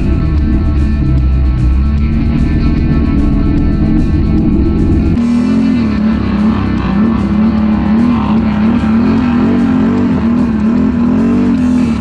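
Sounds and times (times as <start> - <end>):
atv engine revving: 0.0 - 12.0
guitar music: 0.0 - 12.0.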